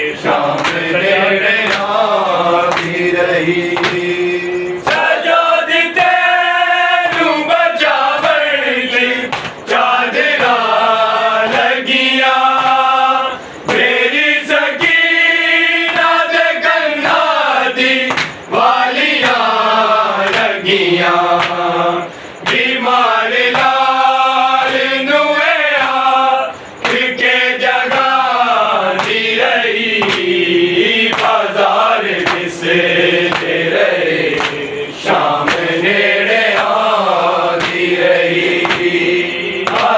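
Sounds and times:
men chanting a lament: 0:00.0 - 0:39.9
hands beating on chests: 0:39.6 - 0:39.9.

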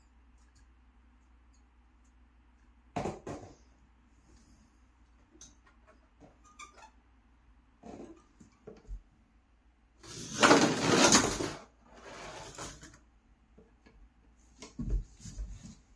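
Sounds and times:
toy car rattling on bathtub: 0:10.0 - 0:12.9.

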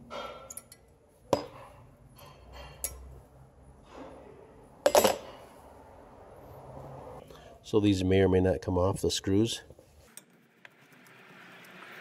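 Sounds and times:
metal clinks and knocks: 0:04.8 - 0:05.5.

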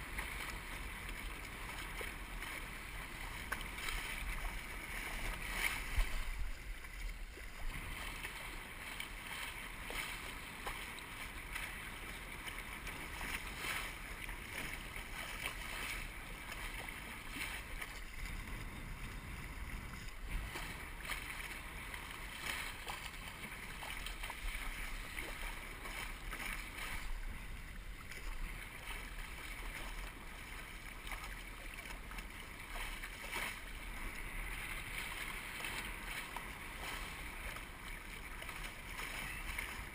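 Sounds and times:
water rushing along hull: 0:00.0 - 0:39.9
wind buffeting microphone: 0:03.8 - 0:08.1, 0:16.6 - 0:22.7.

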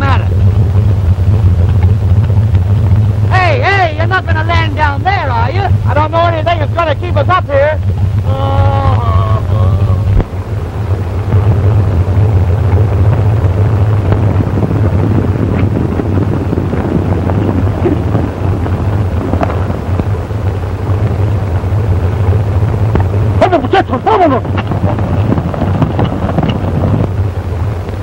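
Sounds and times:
loud film soundtrack rumble: 0:00.0 - 0:28.0.

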